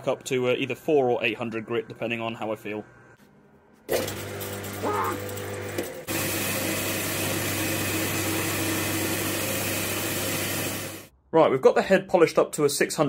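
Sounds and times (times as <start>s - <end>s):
belt grinder grinding metal: 3.9s - 11.1s.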